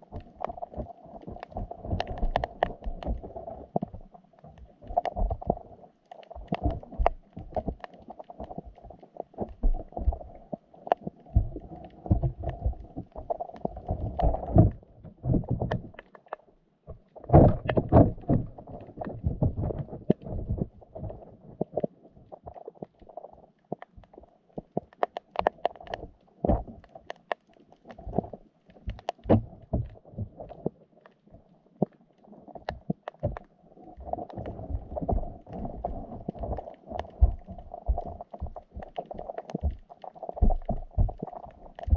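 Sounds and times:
muffled underwater water movement: 0.0s - 41.9s
irregular knocks and clicks: 0.2s - 3.2s, 10.9s - 20.7s, 32.6s - 33.5s, 34.2s - 41.9s.

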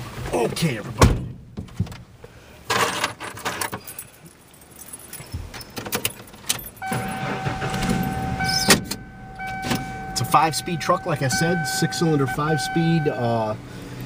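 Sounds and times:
keys jangling: 3.6s - 7.0s
electronic chime tone: 6.8s - 13.3s.

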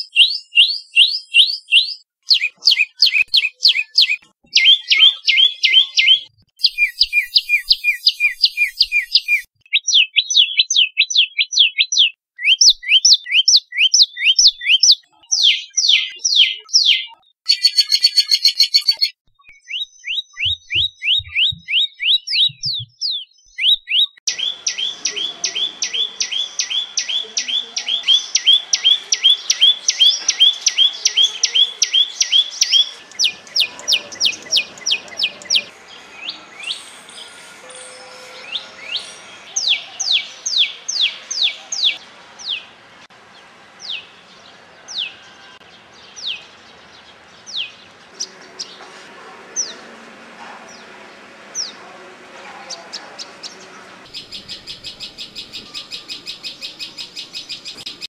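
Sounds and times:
bird calling sharp high notes: 0.1s - 10.5s, 23.6s - 42.6s.

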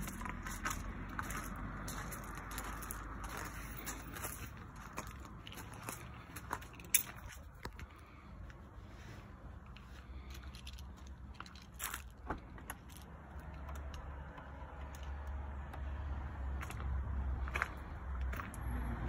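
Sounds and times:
footsteps crunching on gravel: 0.0s - 8.0s, 16.6s - 18.6s.

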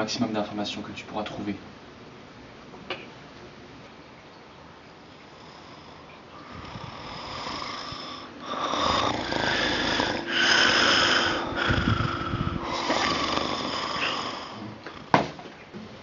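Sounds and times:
person snoring: 5.3s - 15.1s.

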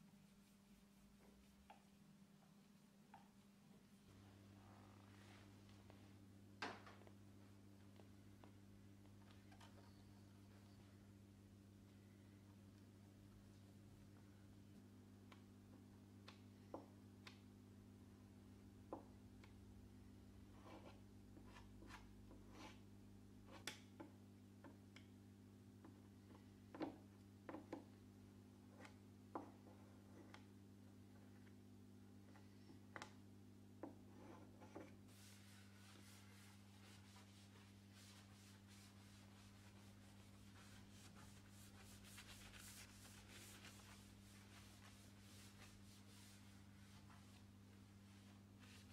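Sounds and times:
low electrical hum: 0.0s - 48.9s
abrasive pad rubbing wood: 34.2s - 46.6s.

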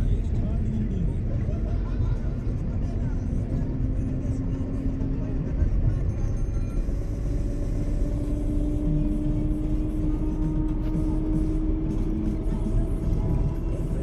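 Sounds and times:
vehicle road and engine noise: 0.0s - 14.0s.

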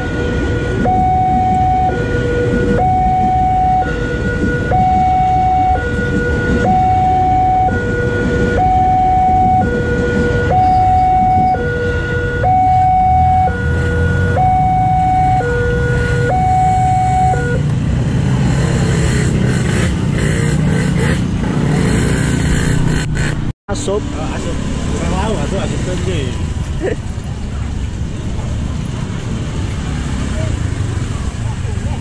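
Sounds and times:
two-tone level-crossing alarm: 0.0s - 17.6s.

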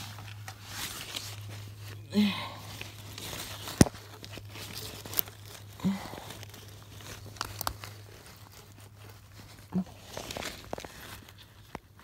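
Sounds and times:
faint low hum: 0.0s - 12.0s
twigs and vegetation snapping: 0.1s - 12.0s.

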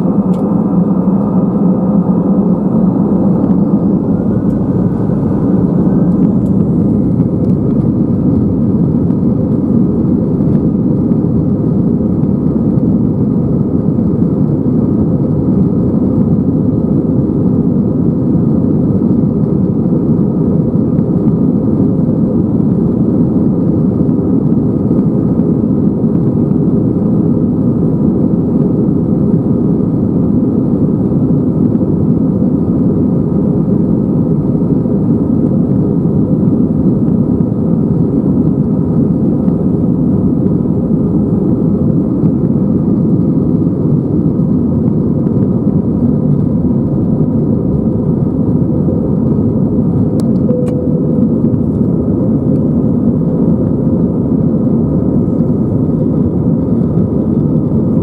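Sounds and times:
jet engines spooling up: 0.0s - 9.2s.

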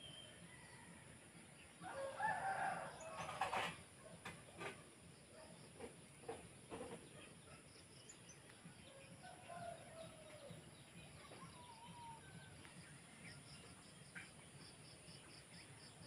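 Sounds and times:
faint rooster crowing: 0.1s - 3.8s, 8.8s - 10.7s, 11.3s - 12.8s.

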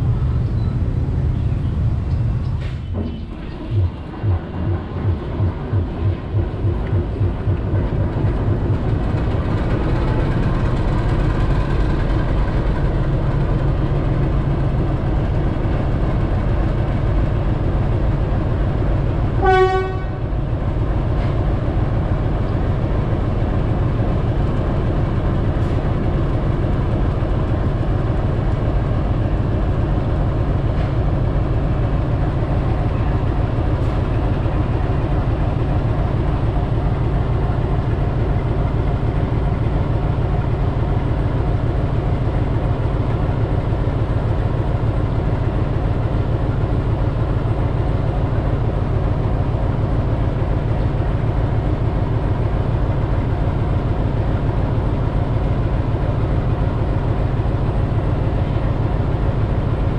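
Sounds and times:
diesel locomotive engine running: 0.0s - 59.9s
locomotive horn toot: 19.4s - 20.3s.

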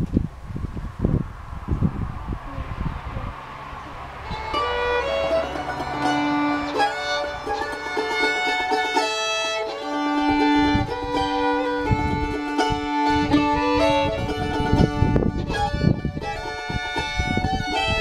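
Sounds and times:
fiddle melody: 3.9s - 18.0s
mandolin strumming: 4.2s - 18.0s.

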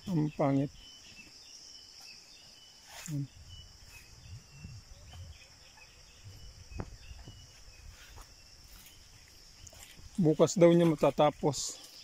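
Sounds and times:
faint bird chirps: 0.0s - 12.0s
insect chorus: 0.0s - 12.0s.

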